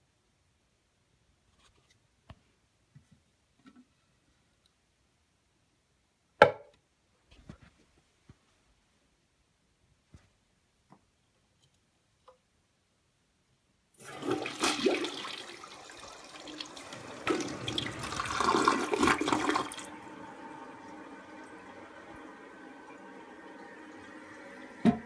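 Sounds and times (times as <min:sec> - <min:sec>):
toilet flushing: 0:14.0 - 0:25.0
toilet refilling water: 0:14.0 - 0:25.0.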